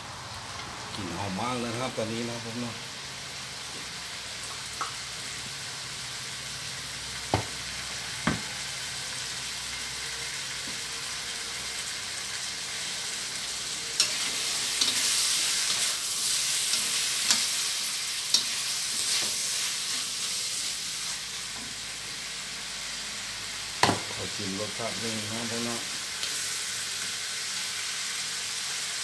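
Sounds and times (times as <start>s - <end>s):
food sizzling in a wok: 0.0s - 29.0s.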